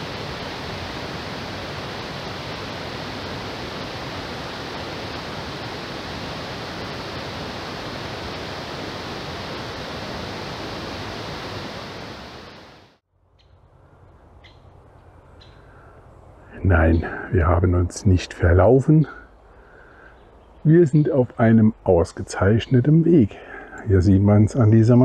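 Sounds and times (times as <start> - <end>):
rushing waterfall: 0.0 - 13.0
quiet outdoor background: 0.0 - 25.0.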